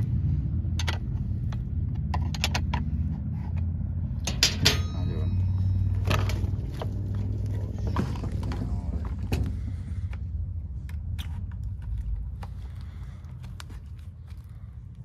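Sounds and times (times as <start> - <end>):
steady low rumble: 0.0 - 15.0
clicks and knocks of parts: 0.8 - 2.9, 4.2 - 4.9.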